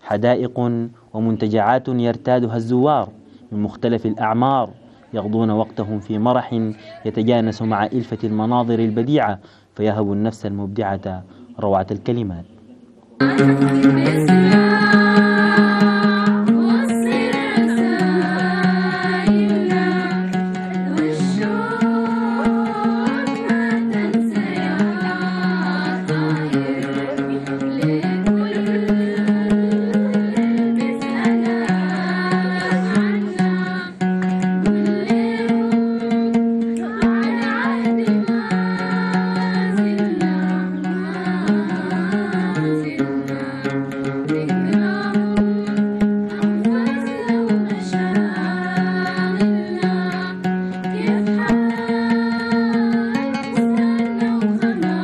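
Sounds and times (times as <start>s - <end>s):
group of voices singing: 13.2s - 55.0s
oud plucking: 13.2s - 55.0s.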